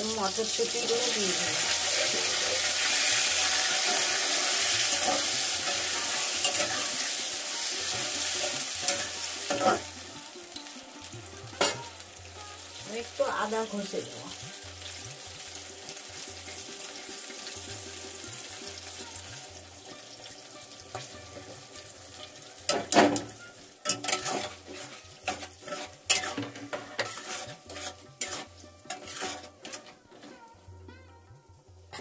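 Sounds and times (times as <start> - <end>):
vegetables sizzling in hot oil: 0.0 - 30.7
spatula scraping metal pan: 0.7 - 10.0, 20.0 - 30.5.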